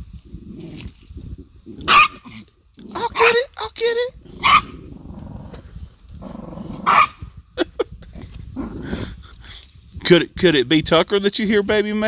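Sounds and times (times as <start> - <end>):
dog barking: 1.9 - 2.2, 4.4 - 4.8, 6.8 - 7.2
dog yipping: 1.9 - 2.3, 4.4 - 4.8.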